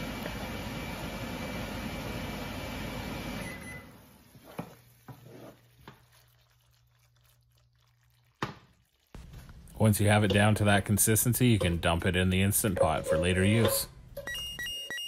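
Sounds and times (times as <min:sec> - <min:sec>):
wooden spoon stirring: 0:04.3 - 0:09.3, 0:10.0 - 0:13.9.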